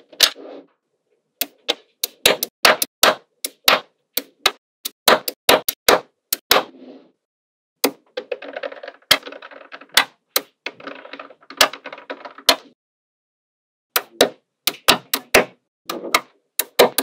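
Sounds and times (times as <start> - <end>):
balls rattling against each other: 8.0 - 12.5.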